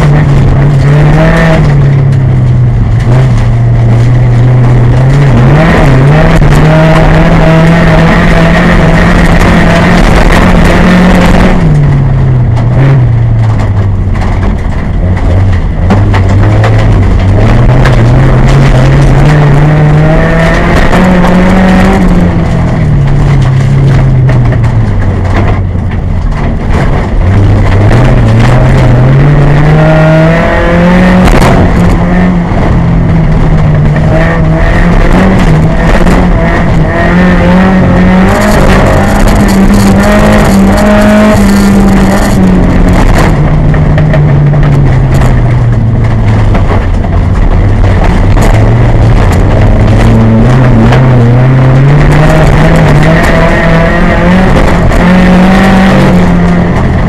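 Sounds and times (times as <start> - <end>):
loud car engine revving: 0.0 - 57.0.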